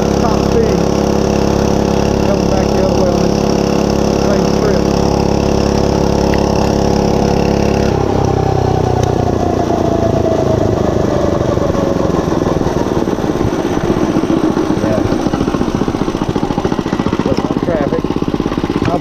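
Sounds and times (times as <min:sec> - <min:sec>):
mini bike engine revving: 0:00.0 - 0:19.0.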